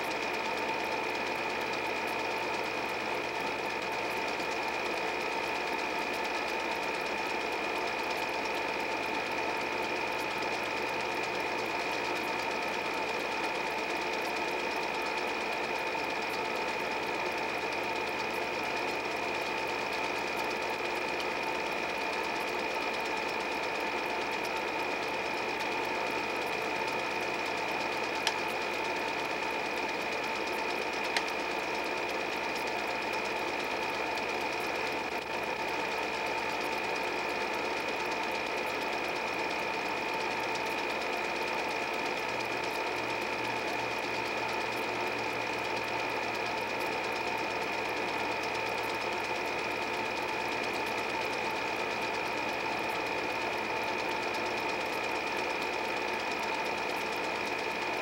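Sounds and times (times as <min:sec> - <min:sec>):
film projector whirring: 0:00.0 - 0:58.0
small clicks: 0:31.0 - 0:31.4.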